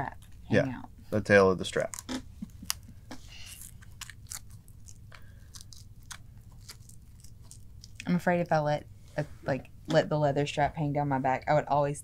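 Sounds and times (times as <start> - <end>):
velcro strap crackling: 1.8 - 8.0.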